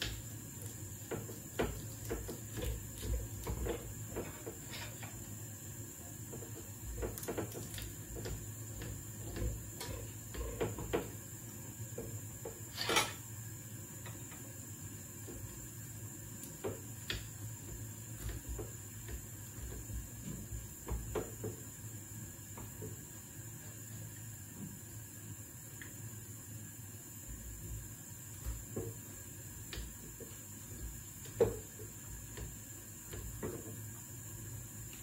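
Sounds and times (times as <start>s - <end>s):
dishes and utensils clattering: 12.7s - 13.2s.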